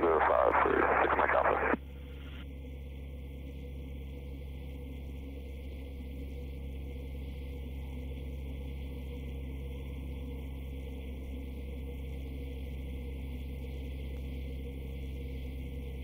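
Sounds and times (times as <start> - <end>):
radio hum and hiss: 0.0 - 2.4.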